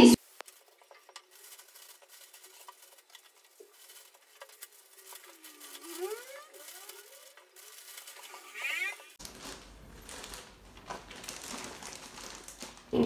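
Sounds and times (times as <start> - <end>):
plastic bag crinkling: 0.2 - 13.0
wavering cry: 5.2 - 7.3.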